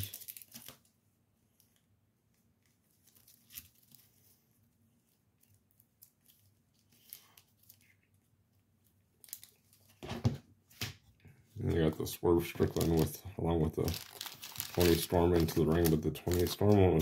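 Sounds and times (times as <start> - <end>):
trading cards rustling and clicking: 0.0 - 0.9, 12.5 - 17.0.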